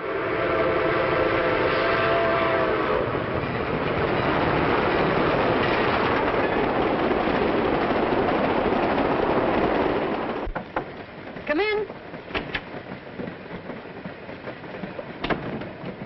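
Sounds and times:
train whistle chord: 0.0 - 3.1
moving train running noise: 0.0 - 16.0.

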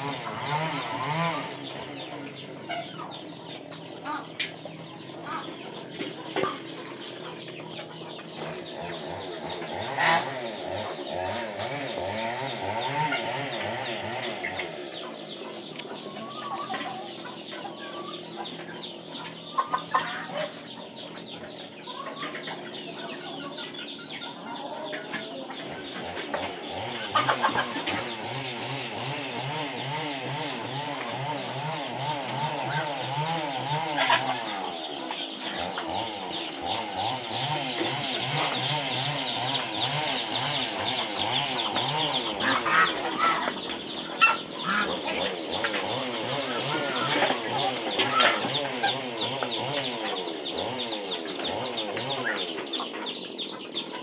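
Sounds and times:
chickens clucking: 0.0 - 54.0
poultry pecking and calling: 0.0 - 54.0.

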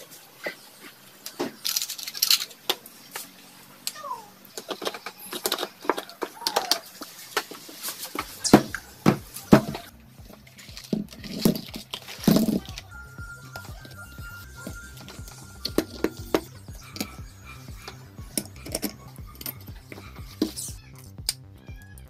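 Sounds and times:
metal parts and tools clattering: 1.2 - 3.3, 4.6 - 12.8, 14.9 - 20.8.

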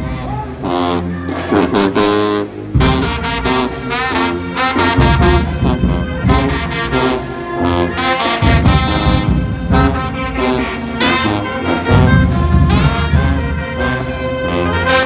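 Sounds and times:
marching band brass chords: 0.0 - 15.0
heavy steady drum hits: 2.7 - 4.0, 4.8 - 7.2, 8.2 - 14.0.

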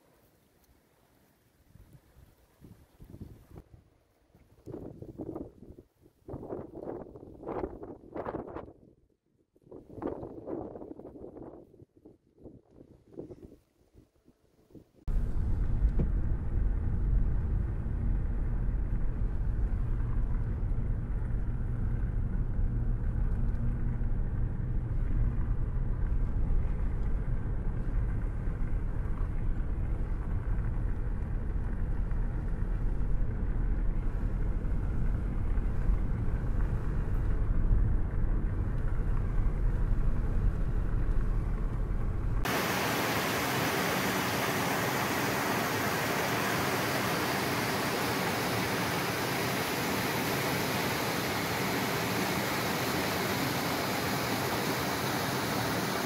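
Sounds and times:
car driving rumble: 15.1 - 43.0
loud hiss: 42.5 - 56.0.

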